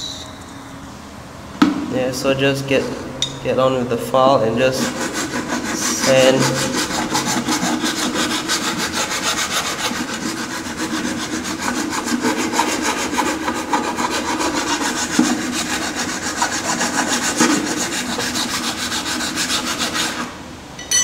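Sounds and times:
file rasping on cardboard: 4.7s - 20.4s.

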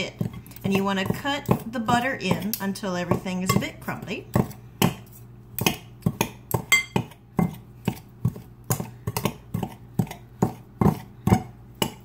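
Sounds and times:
knives chopping butter into flour: 0.0s - 12.0s
knives clinking against glass bowl: 6.7s - 7.0s.

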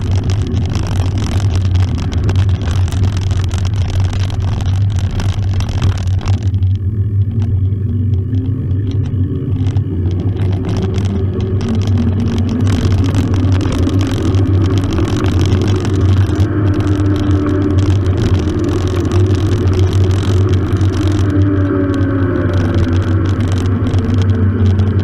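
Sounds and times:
bike rattling: 0.0s - 25.0s
wind rumble on microphone: 0.0s - 25.0s
hum wavering in pitch: 6.2s - 25.0s.

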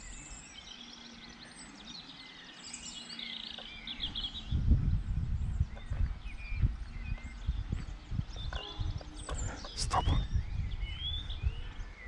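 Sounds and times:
birds singing: 0.0s - 12.0s
wind buffeting microphone: 4.0s - 12.0s.

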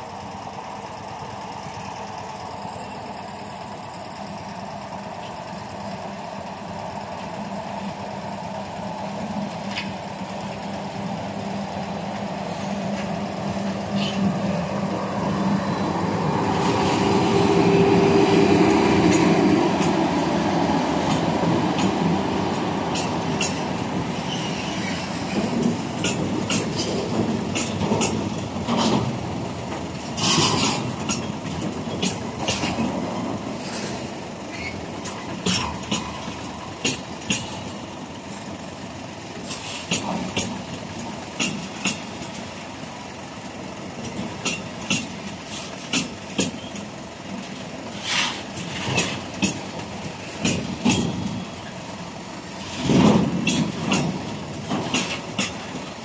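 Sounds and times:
train clatter: 0.0s - 56.0s
train wheels rumbling on track: 0.0s - 56.0s
wheels clicking over rail joints: 8.5s - 56.0s.

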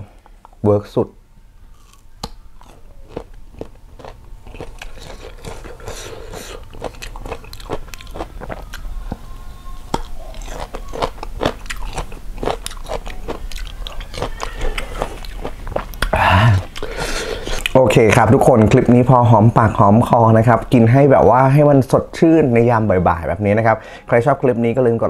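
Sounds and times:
crunchy chewing of raw fruit: 1.7s - 17.8s.

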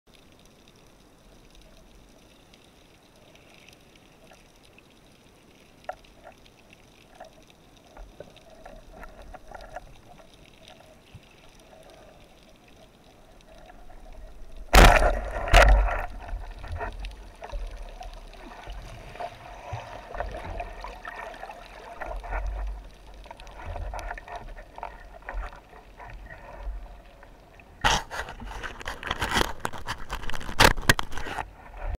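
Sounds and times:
faint underwater hiss: 0.1s - 28.8s
underwater gurgling and sloshing: 0.1s - 32.0s
splashing: 5.4s - 31.4s.

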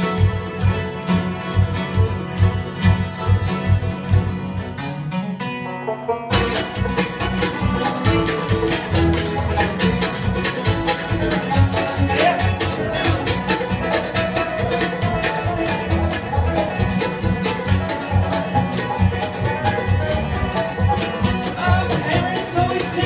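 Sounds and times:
bluegrass band playing: 0.0s - 23.0s.

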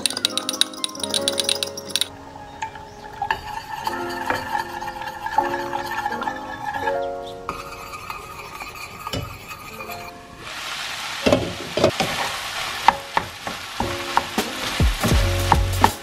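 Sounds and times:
wooden spoon scraping a pan: 3.0s - 16.0s
meat and vegetables sizzling in pan: 10.4s - 16.0s.

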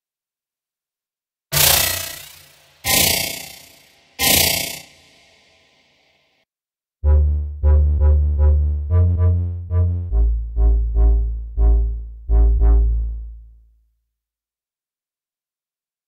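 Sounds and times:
synth bass notes: 7.0s - 13.6s.

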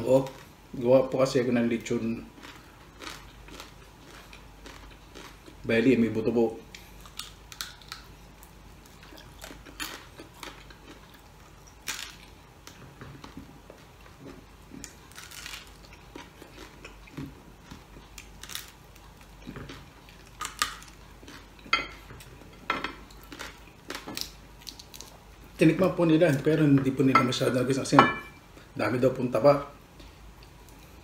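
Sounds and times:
person chewing crispy food: 2.0s - 5.9s, 6.6s - 25.6s.

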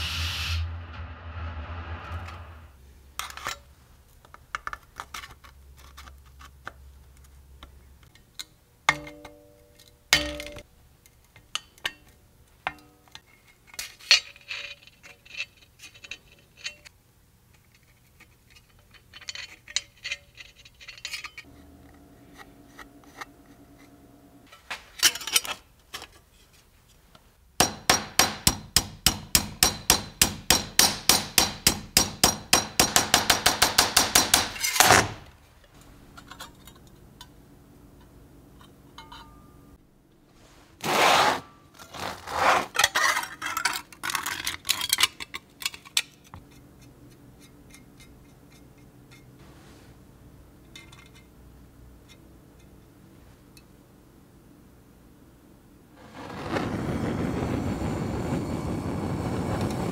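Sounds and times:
metal tools clinking: 18.5s - 21.6s, 38.6s - 39.6s, 50.6s - 51.3s
rapid hammering on metal: 27.6s - 34.6s.

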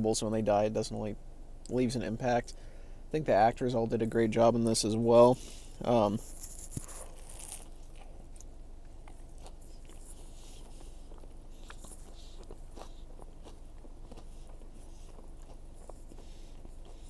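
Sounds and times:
low steady background hum: 0.0s - 17.0s
person chewing with wet mouth clicks: 6.6s - 17.0s.

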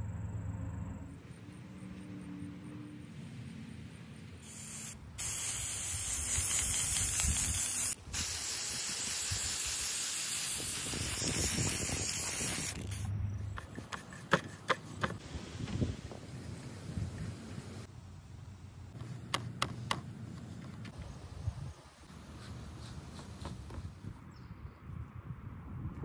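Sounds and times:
aerosol spray can hissing: 4.4s - 13.1s.

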